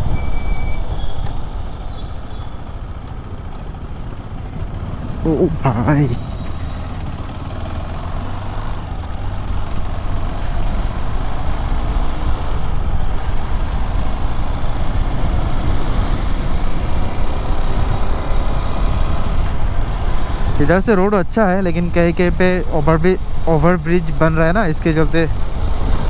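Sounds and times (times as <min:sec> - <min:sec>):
road and traffic noise: 0:00.0 - 0:26.0
motorcycle engine running: 0:02.3 - 0:11.2.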